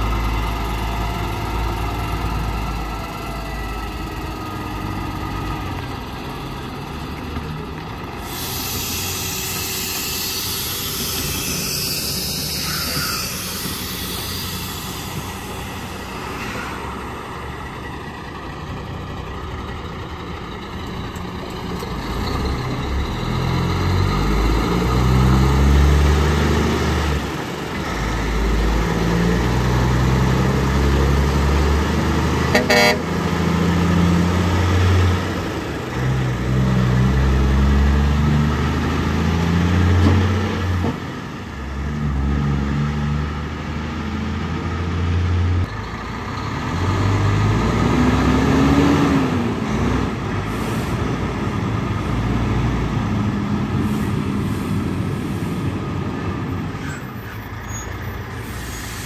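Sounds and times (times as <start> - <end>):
diesel truck engine shifting gears: 0.0 - 59.0
truck passing with tyre noise: 0.0 - 59.0
short horn toot: 32.5 - 33.1.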